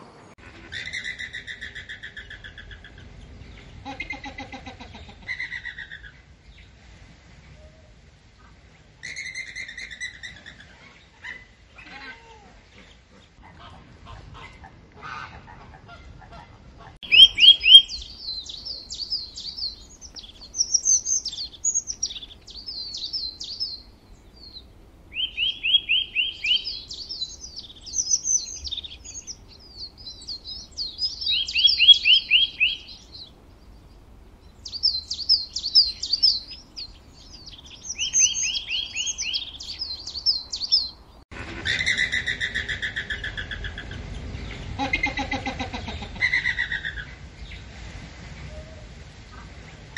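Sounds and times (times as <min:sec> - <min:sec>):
songbird chirping and trilling: 0:17.0 - 0:45.0.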